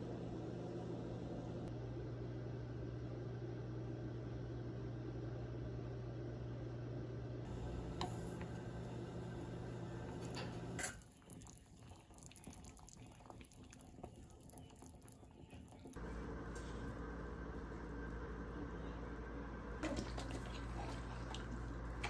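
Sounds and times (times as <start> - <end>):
steady low hum: 0.0 - 22.0
pot of water simmering: 7.5 - 18.5.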